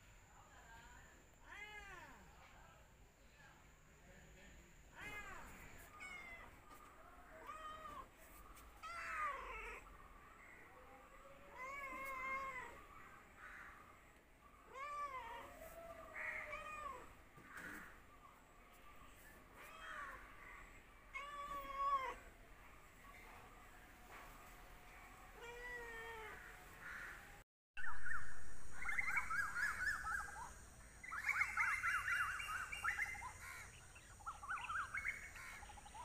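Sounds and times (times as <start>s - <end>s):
cat meowing: 7.3s - 8.1s, 11.4s - 12.8s, 21.1s - 22.2s.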